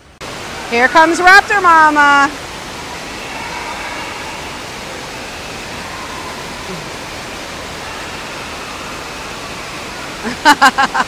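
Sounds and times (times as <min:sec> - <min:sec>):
water rushing and splashing: 0:00.0 - 0:11.0
distant voices: 0:00.3 - 0:10.3.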